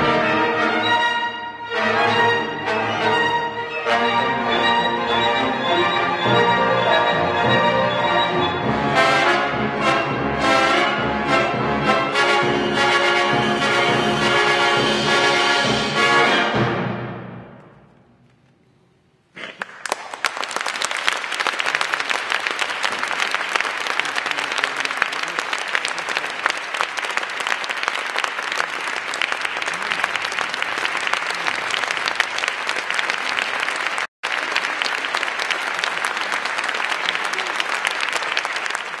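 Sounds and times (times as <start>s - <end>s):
audience applauding: 19.4s - 39.0s.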